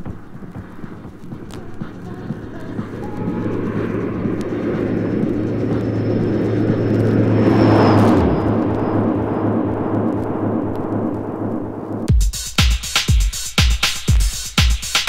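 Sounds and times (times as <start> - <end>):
low regular pulses: 0.0 - 12.1
steady low hum: 0.0 - 12.1
vehicle passing sound effect: 0.6 - 12.1
high tone sliding down: 1.2 - 12.1.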